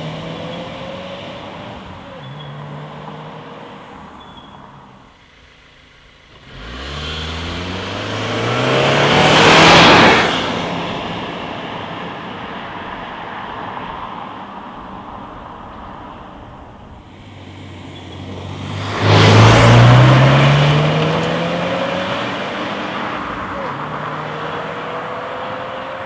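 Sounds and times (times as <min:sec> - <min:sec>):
car accelerating past: 0:06.4 - 0:14.4, 0:17.2 - 0:26.0.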